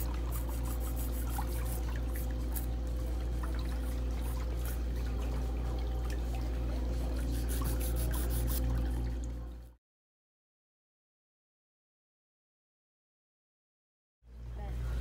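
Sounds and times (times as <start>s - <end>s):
low motor hum: 0.0s - 9.8s
water trickling in a tub: 0.0s - 9.8s.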